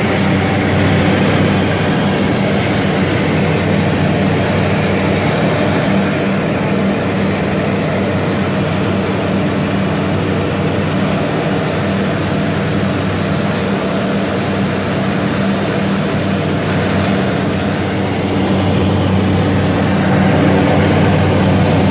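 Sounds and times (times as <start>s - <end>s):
light aircraft engine drone: 0.0s - 21.9s.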